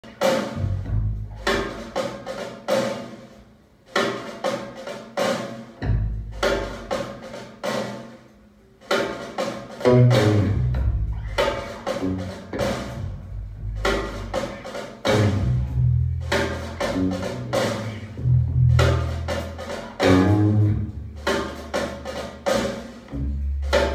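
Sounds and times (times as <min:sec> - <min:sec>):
music with drums and deep bass: 0:00.1 - 0:02.4, 0:05.8 - 0:07.4, 0:08.9 - 0:23.9.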